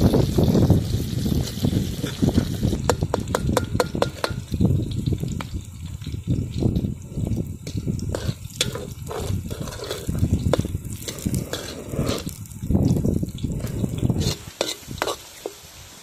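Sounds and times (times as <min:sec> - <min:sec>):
oil sizzling: 0:00.0 - 0:16.0
ladle scraping pan: 0:01.4 - 0:04.5, 0:07.6 - 0:12.4, 0:13.5 - 0:15.7.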